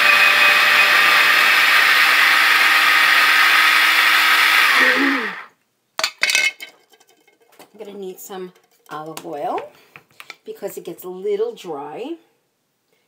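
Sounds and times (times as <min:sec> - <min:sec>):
food chopper motor running: 0:00.0 - 0:05.5.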